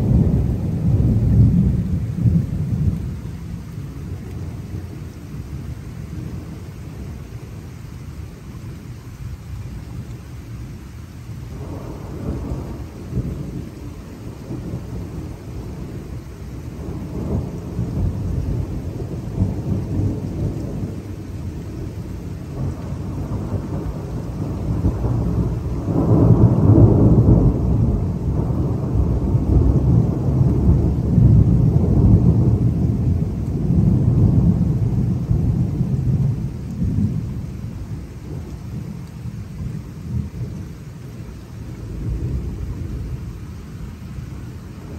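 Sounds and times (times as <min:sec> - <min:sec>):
thunder rumbling: 0:00.0 - 0:10.4, 0:11.1 - 0:44.9.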